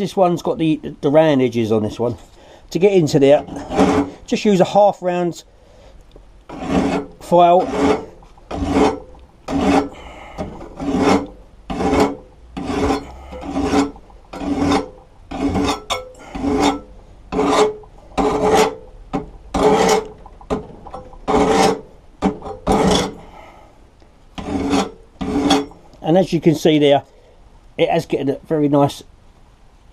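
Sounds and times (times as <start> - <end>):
metal file rasping on steel blade: 3.3 - 4.2, 6.5 - 18.9, 19.6 - 20.2, 21.2 - 21.9, 22.5 - 23.3, 24.4 - 25.9.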